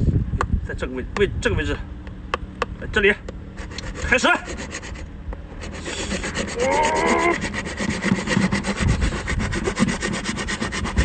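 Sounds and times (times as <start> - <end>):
knife sawing through lobster shell: 3.6 - 11.0.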